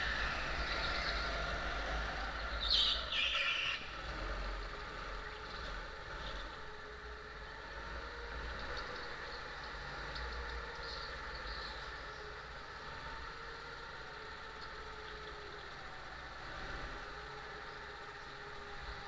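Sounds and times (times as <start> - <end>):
go-kart engine drone: 0.0 - 19.0.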